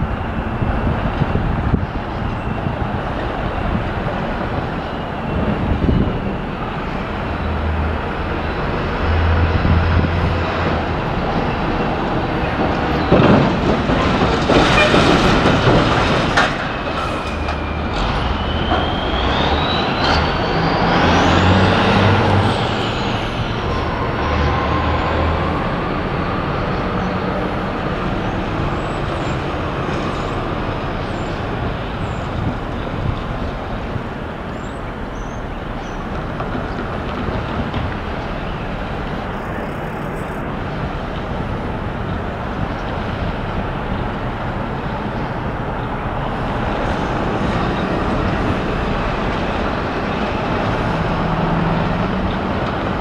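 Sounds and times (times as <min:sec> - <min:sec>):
high squeal from train: 0:00.0 - 0:36.7, 0:38.0 - 0:41.0
diesel locomotive engine throbbing: 0:00.0 - 0:53.0
train knocks and clanks: 0:00.0 - 0:53.0.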